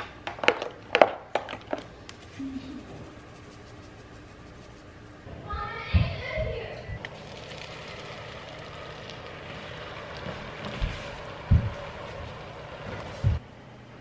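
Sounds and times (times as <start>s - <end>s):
butter sizzling in frying pan: 7.1s - 13.4s
dull thumps: 10.2s - 11.9s.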